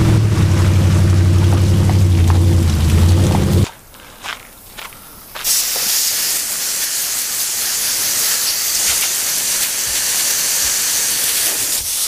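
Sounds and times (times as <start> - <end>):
hose nozzle spraying water: 5.4 - 12.0.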